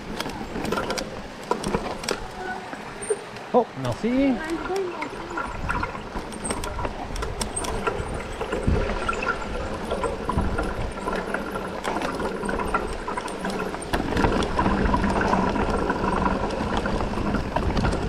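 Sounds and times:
bike clicks and rattles: 0:00.0 - 0:18.0
bike tyre roar on rock: 0:00.0 - 0:18.0
wind rumbling on microphone: 0:04.2 - 0:18.0.

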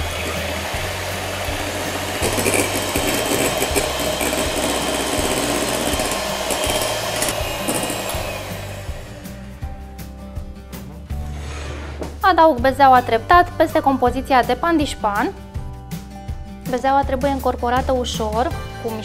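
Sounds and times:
electric hand mixer running: 0:00.0 - 0:09.4.

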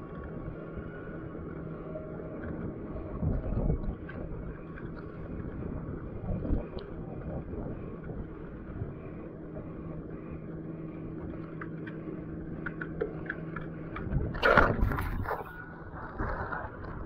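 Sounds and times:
low engine hum: 0:00.0 - 0:17.0
sea water washing along hull: 0:00.0 - 0:17.0
wind on microphone: 0:02.5 - 0:10.1, 0:13.9 - 0:17.0.

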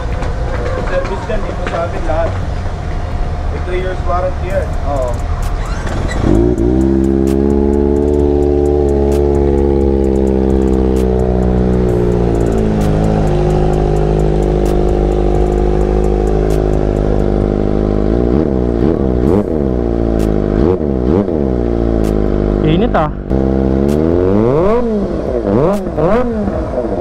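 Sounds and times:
engine revving: 0:03.2 - 0:27.0
motorcycle engine idling: 0:03.6 - 0:23.8.

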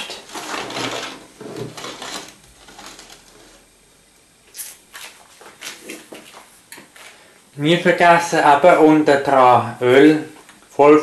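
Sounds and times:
pan scraping on hob: 0:00.0 - 0:03.7.

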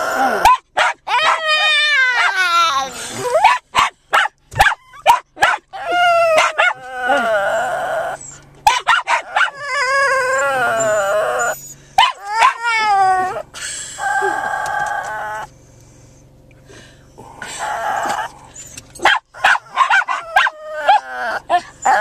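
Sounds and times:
dog howling: 0:00.0 - 0:03.4, 0:04.9 - 0:08.4, 0:09.0 - 0:13.4, 0:14.0 - 0:15.5, 0:17.6 - 0:18.3, 0:19.5 - 0:22.0
dogs barking: 0:00.4 - 0:02.4, 0:03.2 - 0:06.9, 0:08.6 - 0:09.8, 0:12.0 - 0:12.7, 0:19.0 - 0:22.0.

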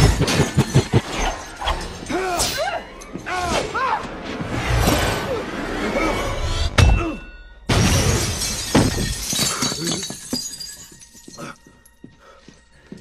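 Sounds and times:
glass shattering: 0:06.8 - 0:11.6
glass pieces clinking: 0:08.2 - 0:11.7.

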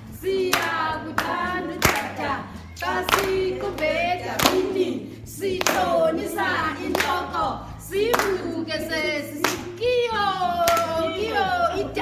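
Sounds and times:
women singing together: 0:00.0 - 0:12.0
hands clapping: 0:00.5 - 0:02.3, 0:02.9 - 0:04.7, 0:05.6 - 0:06.0, 0:06.8 - 0:07.3, 0:08.0 - 0:08.6, 0:09.4 - 0:09.8, 0:10.6 - 0:11.0.

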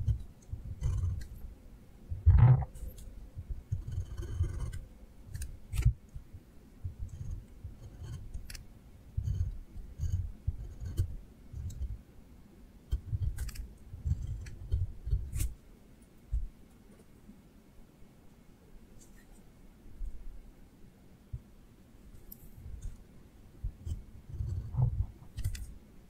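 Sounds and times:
drawing tip scratching paper: 0:03.7 - 0:05.5, 0:09.2 - 0:11.9.

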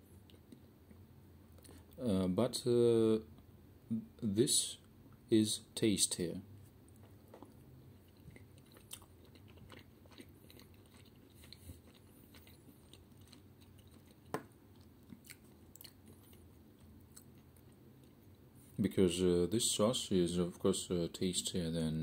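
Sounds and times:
faint chewing: 0:00.1 - 0:02.0, 0:06.6 - 0:18.8.

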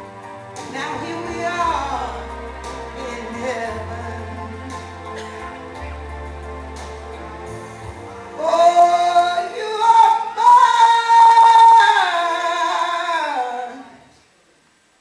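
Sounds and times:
woman singing into a microphone: 0:00.7 - 0:04.5, 0:08.4 - 0:14.1.

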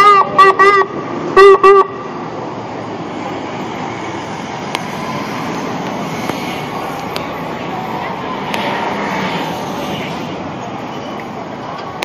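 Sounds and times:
emergency vehicle horn blasts: 0:00.0 - 0:02.1
city traffic noise: 0:00.0 - 0:12.0.

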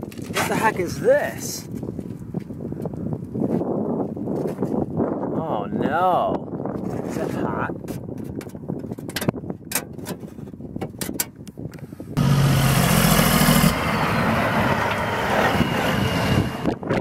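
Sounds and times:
low engine hum: 0:12.1 - 0:17.0
passing traffic road noise: 0:12.2 - 0:17.0
truck passing: 0:12.2 - 0:17.0.

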